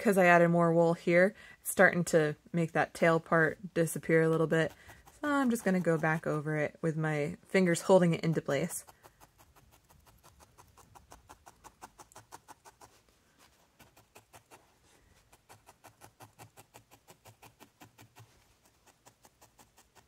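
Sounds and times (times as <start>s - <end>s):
felting needle stabbing wool: 3.0s - 20.0s.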